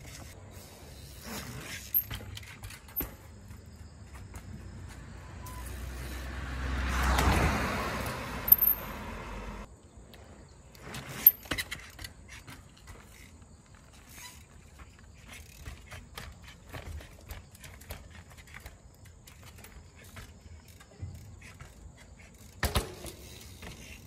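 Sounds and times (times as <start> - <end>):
vehicle passing by: 4.5 - 9.7.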